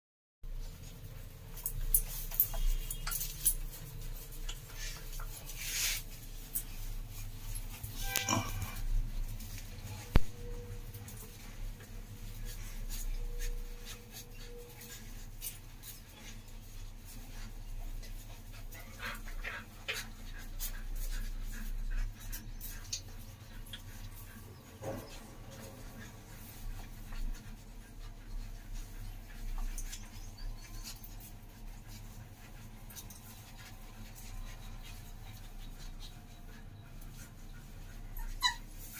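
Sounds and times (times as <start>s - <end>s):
puppies suckling and clicking: 0.5s - 38.9s
dog panting: 11.2s - 38.9s
puppy whimper: 36.1s - 38.9s.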